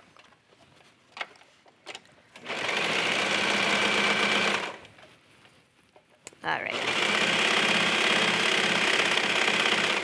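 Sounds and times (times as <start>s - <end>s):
sewing machine stitching: 2.4s - 4.8s, 6.7s - 10.0s.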